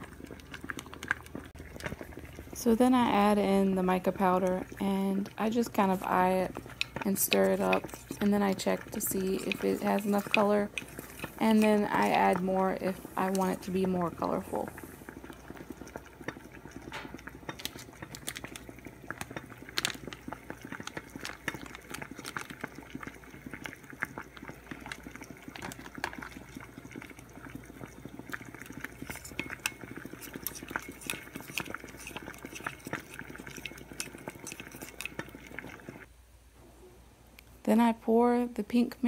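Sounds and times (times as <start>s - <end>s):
water boiling hard in saucepan: 0.0s - 36.1s
plastic spoon stirring: 3.9s - 36.1s
glass cup rattling against pot: 6.6s - 14.3s, 15.6s - 23.7s, 24.4s - 36.1s.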